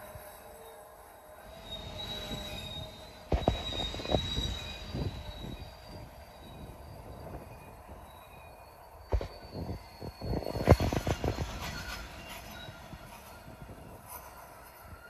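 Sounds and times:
freight train rolling by: 0:00.0 - 0:15.0
wheels squealing on rail: 0:00.0 - 0:15.0
thumps and clanks from cars: 0:03.3 - 0:04.3.

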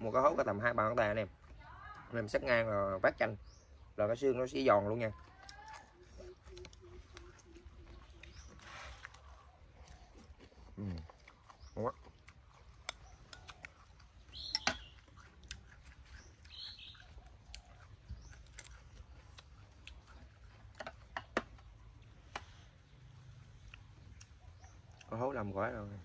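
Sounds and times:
chewing and mouth clicks: 0:05.0 - 0:25.8.

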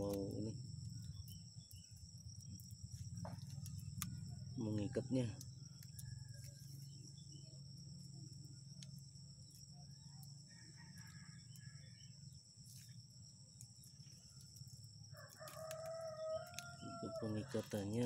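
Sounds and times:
high insect whine: 0:00.0 - 0:18.0
rooster crowing: 0:10.4 - 0:12.2, 0:15.1 - 0:18.0.

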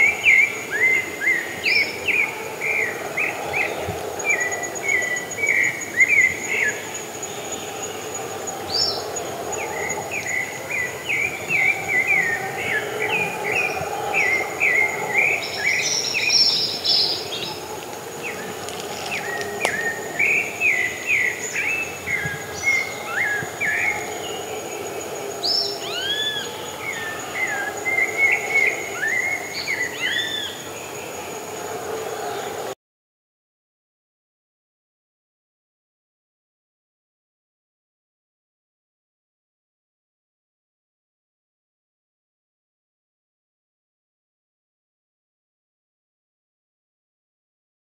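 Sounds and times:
high insect trill: 0:00.0 - 0:32.7
thrush singing: 0:00.0 - 0:32.8.

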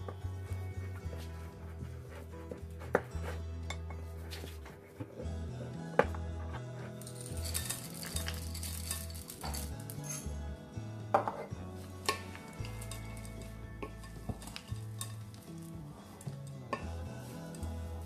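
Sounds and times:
background music: 0:00.0 - 0:18.0
chocolate chips poured into bowl: 0:07.0 - 0:10.2.

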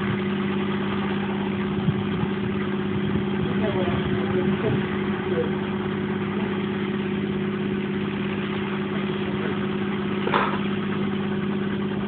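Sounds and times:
short knock: 0:10.2 - 0:10.6.

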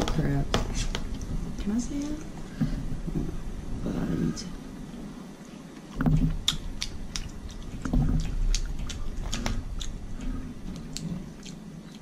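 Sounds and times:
wet chewing and lip smacking: 0:05.8 - 0:12.0.

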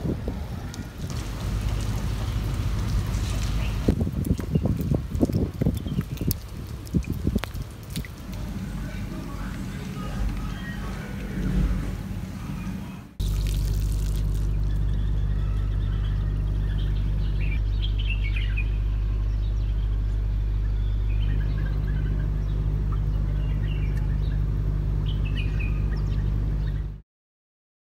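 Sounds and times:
rain on wet pavement: 0:00.0 - 0:14.9
birds chirping: 0:00.0 - 0:27.0
low mechanical hum: 0:00.0 - 0:27.0.

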